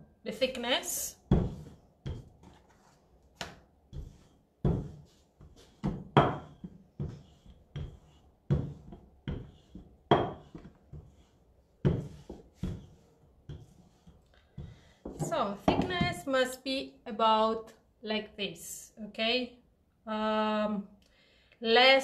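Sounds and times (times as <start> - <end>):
rolling pin rolling dough: 1.2 - 15.9.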